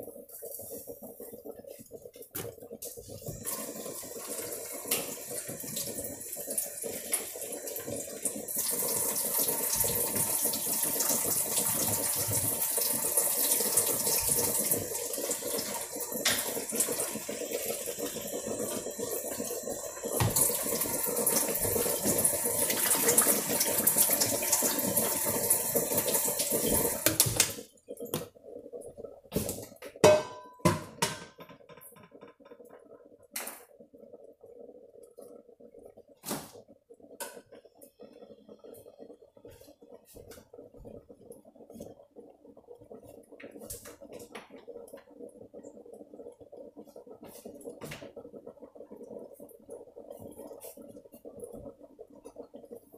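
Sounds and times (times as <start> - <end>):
tap running into sink: 20.2 - 20.8
dishes clinking and knocking: 30.0 - 31.9.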